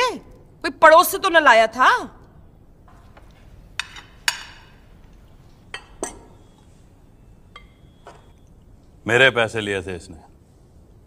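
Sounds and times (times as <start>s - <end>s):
cutlery and dishes clinking: 3.0s - 6.7s.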